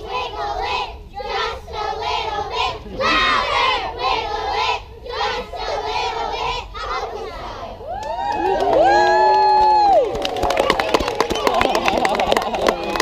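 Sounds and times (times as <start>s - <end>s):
children singing in unison: 0.0s - 7.8s.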